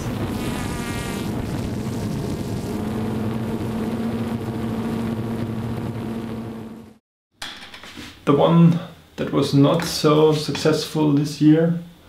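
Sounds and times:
drone propellers whirring: 0.0 - 7.0.

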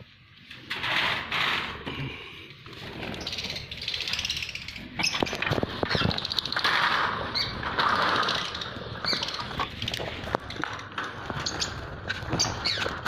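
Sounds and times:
clicks and rustles: 5.0 - 13.0.

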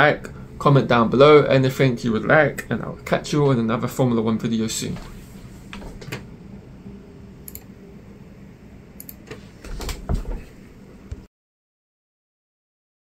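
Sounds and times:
small clicks: 9.0 - 9.3.

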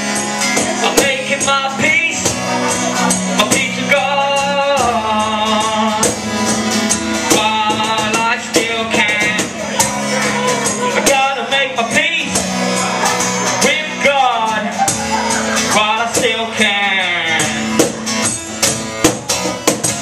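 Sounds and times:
strummed acoustic guitar: 0.0 - 20.0
man singing into microphone: 0.4 - 17.8
cajon slapped by hand: 17.8 - 18.0, 19.0 - 20.0.

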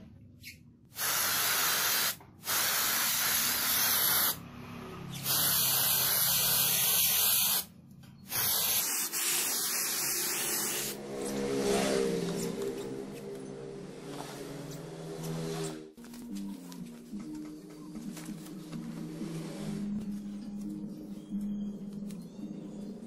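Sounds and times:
spray paint hissing: 0.9 - 4.4, 5.1 - 7.7, 8.3 - 11.0.

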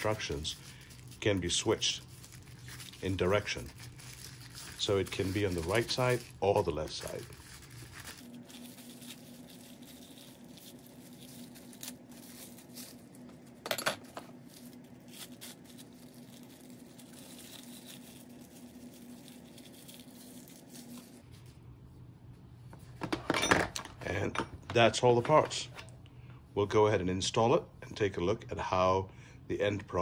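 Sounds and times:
wrapping sheet rustling: 0.0 - 21.6
faint steady hum: 0.0 - 30.0.

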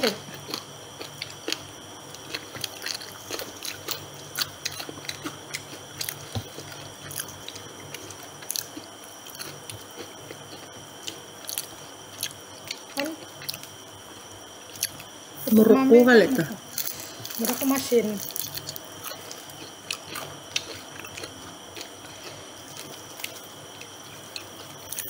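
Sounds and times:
wet chewing: 0.4 - 13.7, 16.7 - 25.0
crisp crackles of fried coating: 16.7 - 21.3.

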